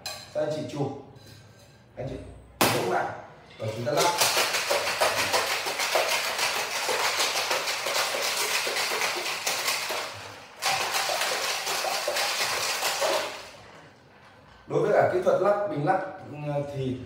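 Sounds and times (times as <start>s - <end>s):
ice rattling in cocktail shaker: 3.9s - 13.6s.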